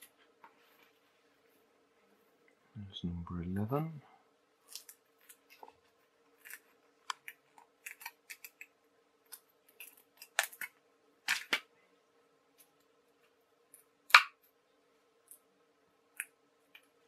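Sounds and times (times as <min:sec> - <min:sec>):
card crackling and snapping: 0:04.6 - 0:11.7.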